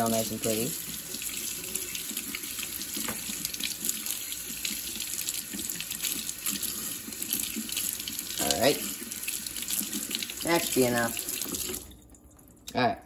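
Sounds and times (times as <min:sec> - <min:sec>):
tap water running into sink: 0:00.0 - 0:12.2.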